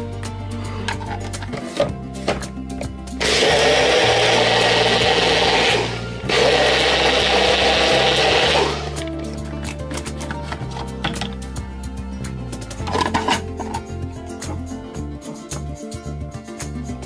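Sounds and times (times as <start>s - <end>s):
blender whirring: 3.2s - 9.1s.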